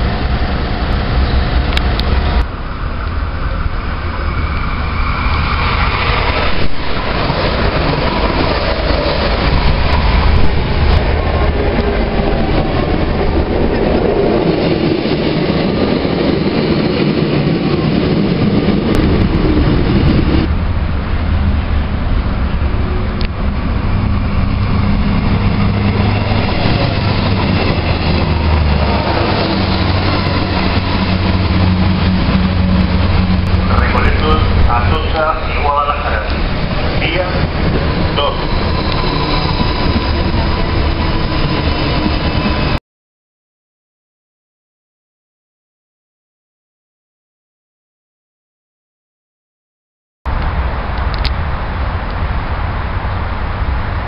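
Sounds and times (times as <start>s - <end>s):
approaching train humming: 0.0s - 42.8s, 50.3s - 54.0s
train wheels rumbling on rails: 0.0s - 42.8s.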